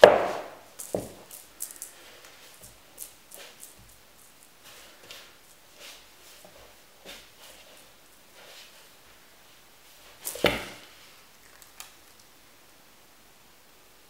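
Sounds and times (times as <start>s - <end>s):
cat scuffling on wooden floor: 0.3s - 9.0s, 9.9s - 11.2s
soft rustles: 0.3s - 12.2s.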